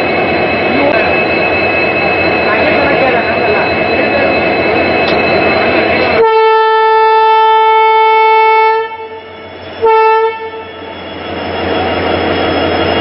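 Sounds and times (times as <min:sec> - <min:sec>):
locomotive running noise: 0:00.0 - 0:13.0
locomotive horn blasts: 0:06.2 - 0:10.8.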